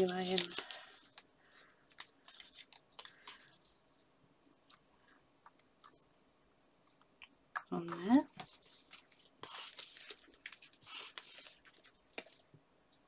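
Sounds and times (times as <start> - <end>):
paper rustling: 0.0 - 1.2, 7.9 - 12.4.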